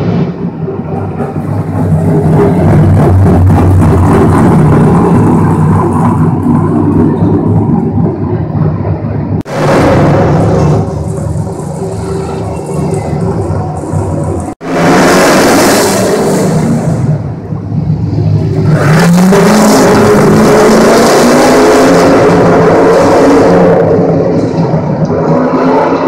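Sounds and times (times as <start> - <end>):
car engine revving hard: 9.5 - 17.3, 18.5 - 24.4.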